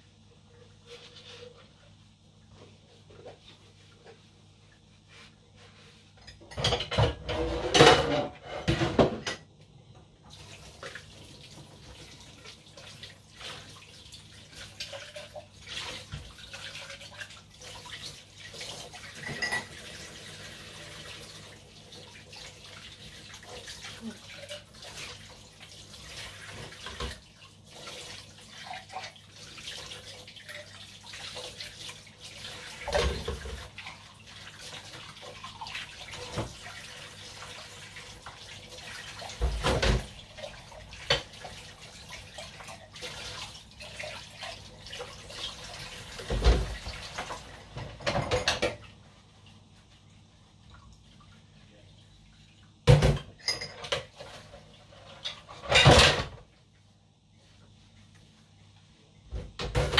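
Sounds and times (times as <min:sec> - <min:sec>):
plates and cups clinking: 0:06.2 - 0:09.5, 0:19.2 - 0:19.9, 0:53.0 - 0:54.1.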